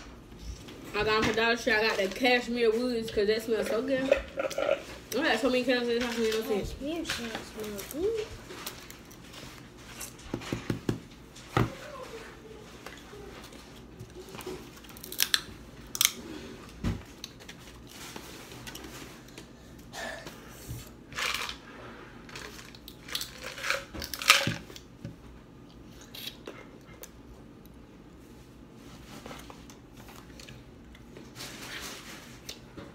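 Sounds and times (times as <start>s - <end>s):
shrimp shells cracking: 14.9s - 16.2s.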